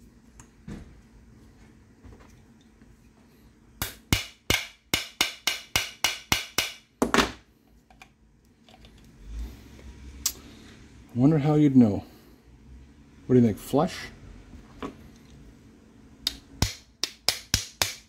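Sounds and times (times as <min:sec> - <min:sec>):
hammer tapping on metal: 0:03.8 - 0:06.8.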